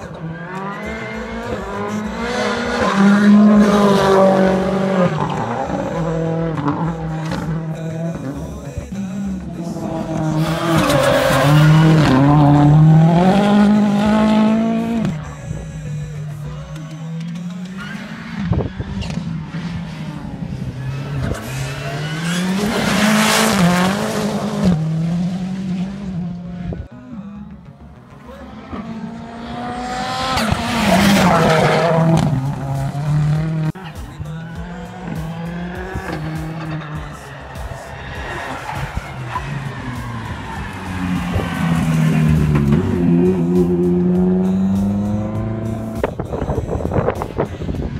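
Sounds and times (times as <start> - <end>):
race car engine accelerating: 0.0 - 8.6, 9.4 - 26.8, 27.6 - 47.7
distant race car engine: 27.4 - 47.9.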